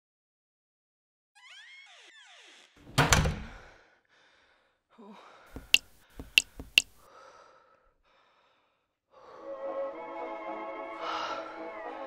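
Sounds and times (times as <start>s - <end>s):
heavy door thud: 2.9s - 3.6s
sharp knocks: 5.6s - 7.0s.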